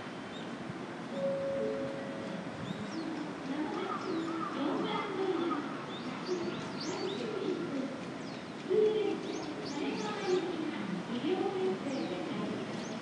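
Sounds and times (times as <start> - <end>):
small birds chirping: 2.6 - 10.7, 11.5 - 13.0.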